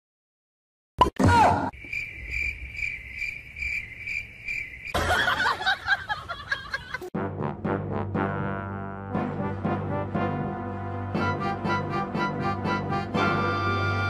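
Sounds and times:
cricket chirping: 1.7s - 7.0s
brass music: 7.1s - 14.0s.

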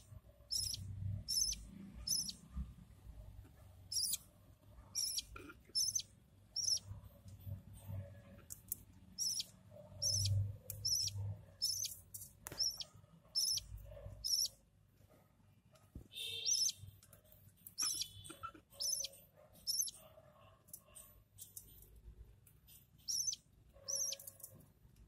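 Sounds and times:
chicks begging chirps: 0.0s - 2.4s, 3.9s - 4.2s, 4.9s - 6.9s, 9.2s - 14.6s, 16.4s - 16.8s, 17.8s - 20.0s, 23.0s - 24.3s.

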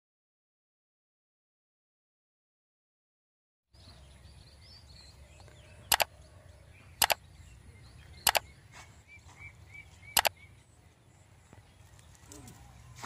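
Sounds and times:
small birds chirping: 3.8s - 13.0s
computer mouse double click: 5.9s - 6.1s, 7.0s - 7.2s, 8.2s - 8.4s.

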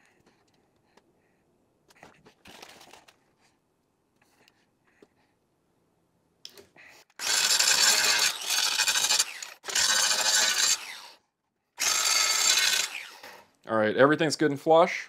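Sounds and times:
angle grinder grinding: 7.2s - 11.2s, 11.8s - 13.5s.

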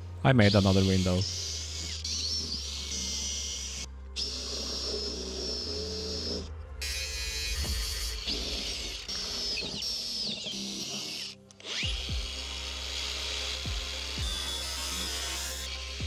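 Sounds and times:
small electric motor whining: 0.0s - 16.0s
music with thumping beat: 7.4s - 8.5s, 11.7s - 12.6s, 13.6s - 16.0s.

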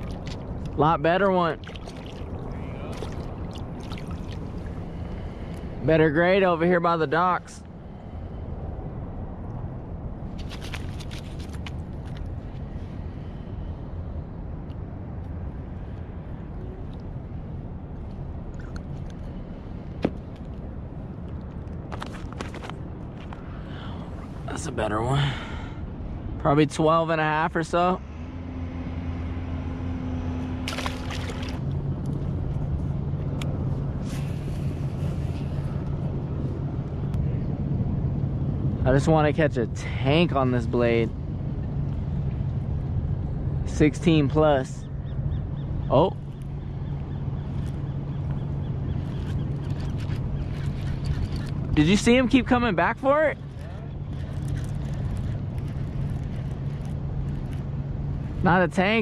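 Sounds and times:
fish splashing in water: 0.0s - 0.6s, 1.6s - 5.0s, 10.4s - 11.8s, 30.6s - 31.6s
boat engine droning: 0.0s - 10.3s, 23.4s - 59.0s
steady low rumble: 0.0s - 59.0s.

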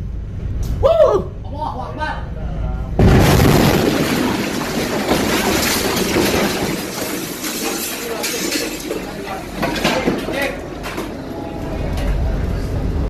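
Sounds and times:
rumbling aboard a ship: 2.8s - 13.0s
loose objects falling: 3.0s - 11.2s.

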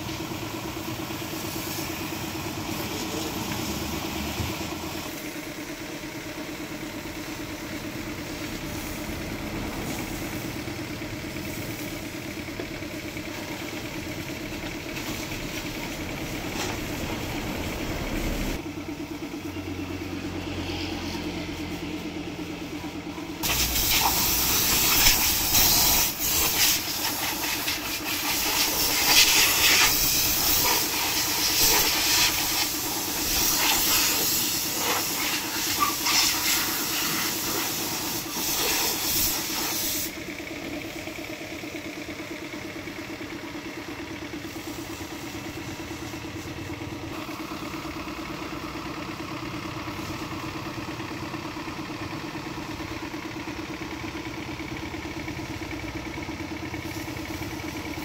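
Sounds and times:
pressure washer jet spraying: 23.4s - 40.2s.

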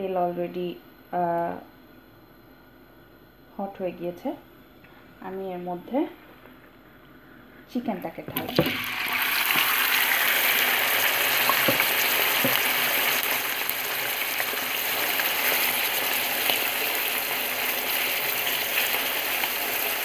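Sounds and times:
chicken sizzling in hot oil: 8.4s - 20.0s.

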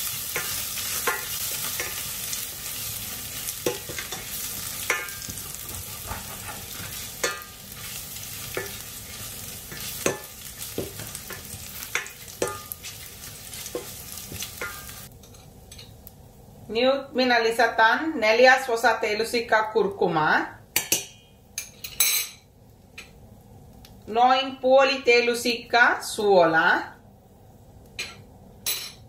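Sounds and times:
garlic sizzling in hot oil: 0.0s - 17.7s
spoon scraping and tapping pan: 0.3s - 2.1s, 3.6s - 13.0s, 13.6s - 15.9s.

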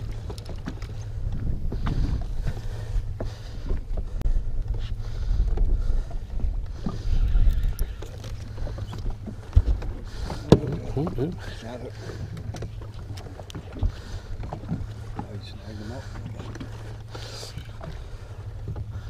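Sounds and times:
water slapping against boat hull: 0.0s - 7.1s, 7.8s - 19.0s
wind rumbling on microphone: 0.0s - 19.0s
knocks and clatter on deck: 9.6s - 11.2s.

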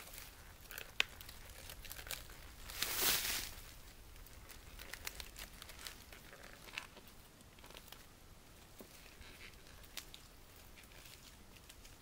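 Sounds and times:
bark crackling and scratching: 0.0s - 3.2s.

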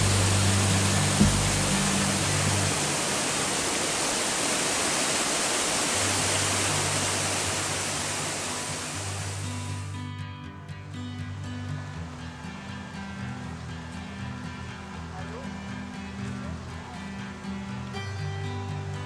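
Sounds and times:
low sustained music notes: 0.0s - 4.4s, 5.6s - 19.0s
water cascading over stone weirs: 0.0s - 10.0s.

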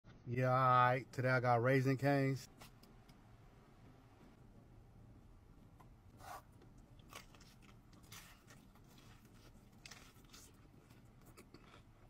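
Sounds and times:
chewing crunchy food: 6.8s - 12.0s.

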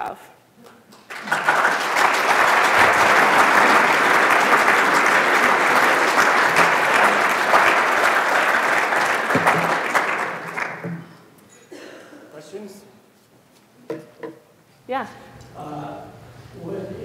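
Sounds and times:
audience applauding: 0.9s - 11.2s.

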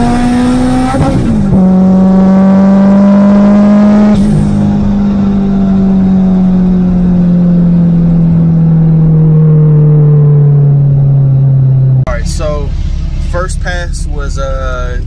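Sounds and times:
car engine revs falling: 0.0s - 13.4s.

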